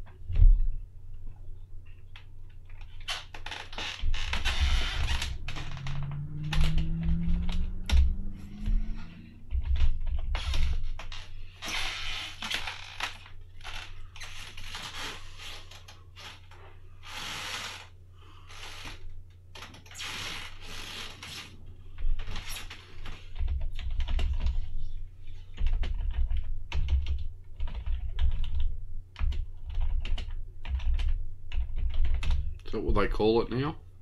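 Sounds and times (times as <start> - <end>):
steady low hum: 0.0 - 34.0
low thumps: 4.0 - 10.9.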